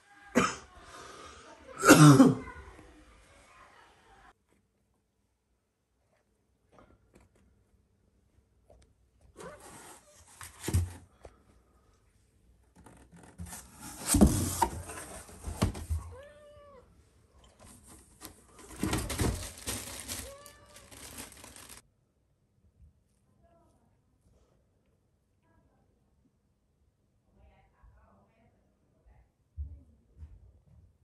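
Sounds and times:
cat meowing: 16.0 - 16.9, 20.0 - 21.2.

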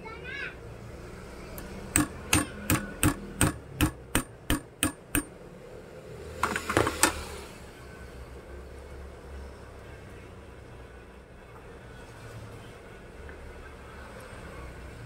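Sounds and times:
hammer knocking on metal: 1.9 - 5.3.

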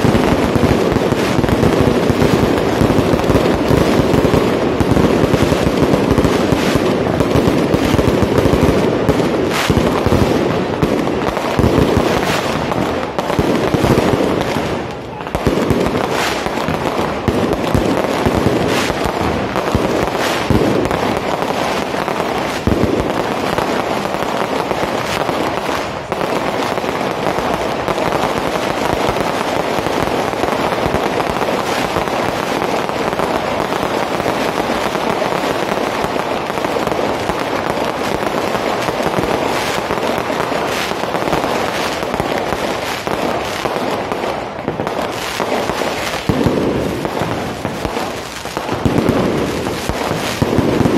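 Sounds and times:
fireworks crackling: 0.0 - 50.9
loud fireworks bangs: 0.0 - 50.9.

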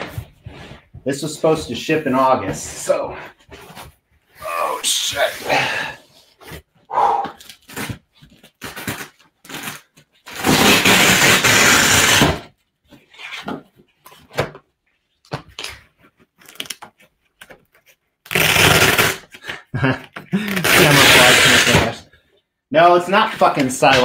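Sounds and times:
packing straps ripping: 18.3 - 19.3, 20.4 - 21.9.

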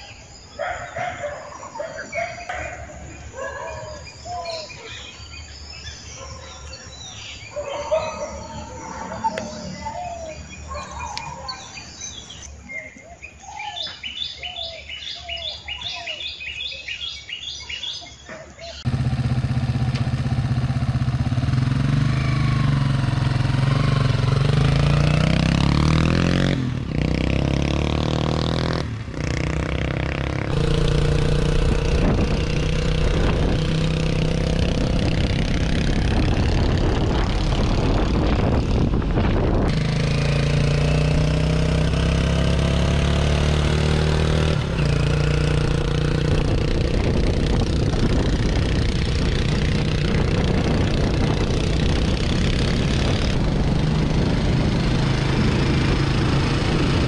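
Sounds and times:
birds chirping and singing: 0.0 - 20.4
motorcycle engine revving: 7.2 - 11.3, 18.7 - 57.0.

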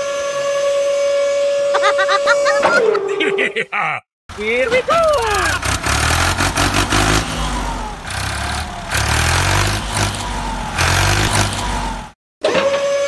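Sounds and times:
tractor engine revving: 4.3 - 12.2.

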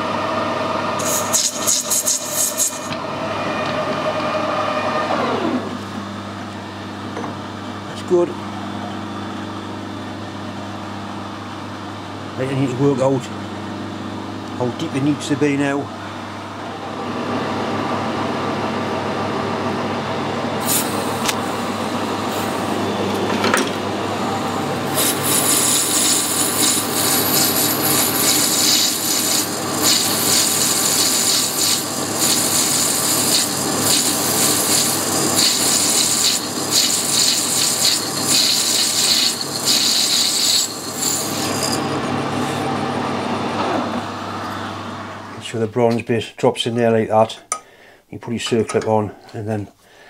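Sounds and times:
metal lathe humming: 0.0 - 5.9, 20.4 - 43.4.

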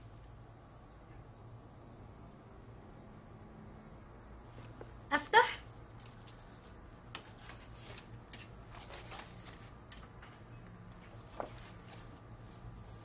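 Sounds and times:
stiff paper pages rustling: 6.0 - 13.0.

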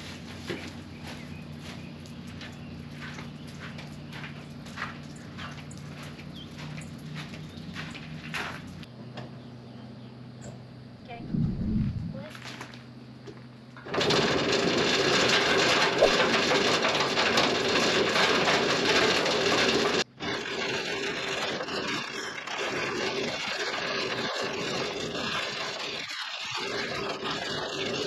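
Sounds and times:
metal chain clattering and scraping: 13.8 - 28.0.

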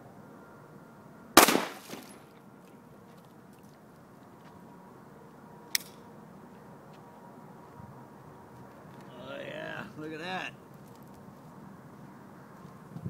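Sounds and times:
mug breaking: 1.4 - 2.2
pistol shot cracking: 1.4 - 2.2.

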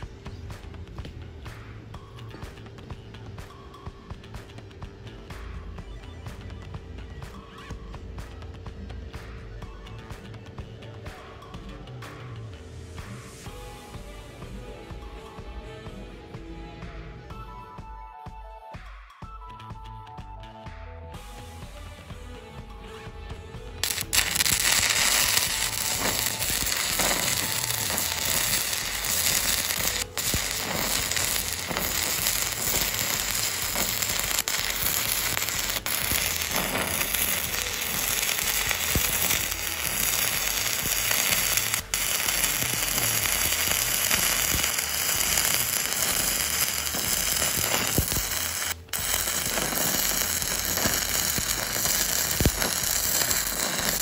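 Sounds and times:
welding arc crackling: 23.8 - 54.0.

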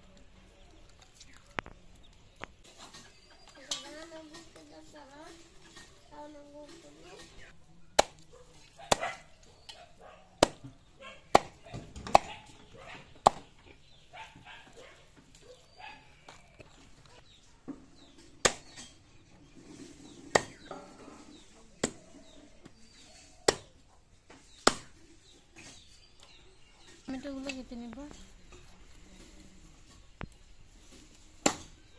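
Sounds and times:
knife chopping chicken on wood: 8.0 - 8.2, 10.4 - 12.5, 13.2 - 13.5.

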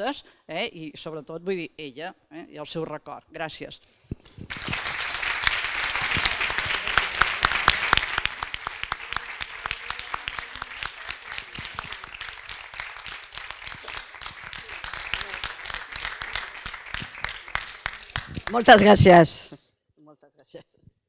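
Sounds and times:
audience applauding: 4.3 - 19.3.

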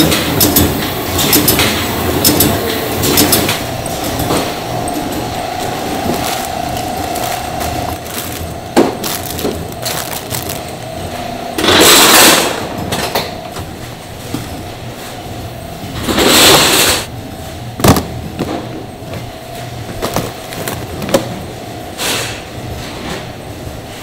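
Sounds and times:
machinery hum: 0.0 - 24.0
plastic crates scraping: 2.6 - 12.6, 17.8 - 21.5
plastic crates knocking: 5.6 - 11.0, 17.8 - 19.3, 19.9 - 21.4.

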